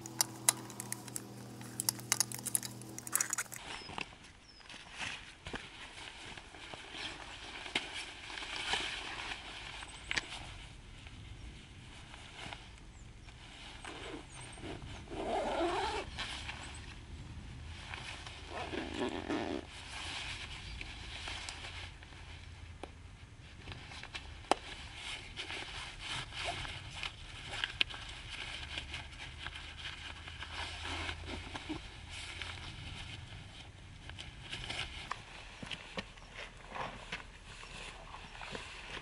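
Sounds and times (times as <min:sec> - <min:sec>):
fastener clicks: 0:00.0 - 0:03.6
zipper being done up: 0:00.0 - 0:03.6, 0:13.9 - 0:16.2, 0:18.4 - 0:19.7
clothing rustling: 0:00.0 - 0:03.8.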